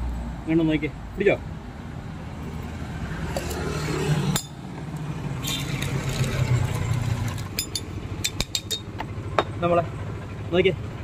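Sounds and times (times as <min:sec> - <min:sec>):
vehicle engine hum: 0:00.0 - 0:11.0
glass clinks: 0:07.6 - 0:09.5.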